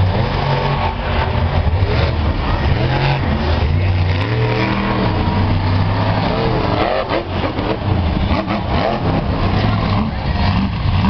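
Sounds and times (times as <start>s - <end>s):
truck engine revving hard: 0.0s - 11.0s.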